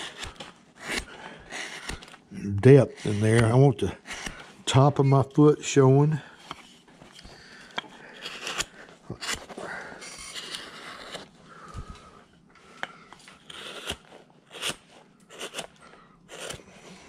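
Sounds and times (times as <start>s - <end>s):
gouge scraping wood: 0.0s - 4.5s, 6.3s - 11.3s, 13.4s - 15.7s, 16.3s - 16.9s.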